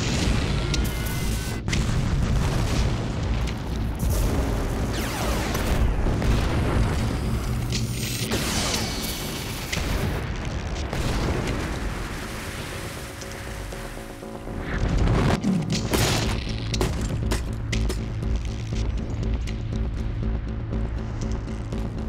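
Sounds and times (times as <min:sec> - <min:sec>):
explosions with booming rumble: 0:00.0 - 0:22.0.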